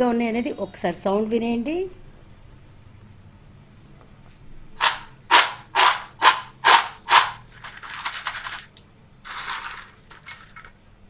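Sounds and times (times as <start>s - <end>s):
crisp snacks rattling in metal bowl: 4.8s - 10.8s.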